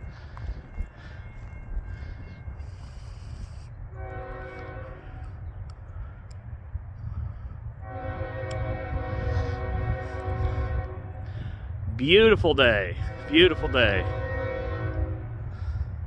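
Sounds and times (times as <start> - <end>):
locomotive air horn blasts: 4.0 - 5.3, 7.8 - 11.5, 12.9 - 15.7.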